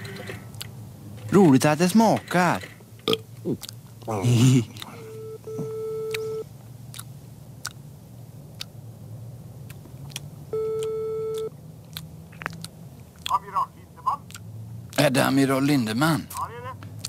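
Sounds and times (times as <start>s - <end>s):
telephone ringing tone beep: 5.1s - 6.4s, 10.6s - 11.5s.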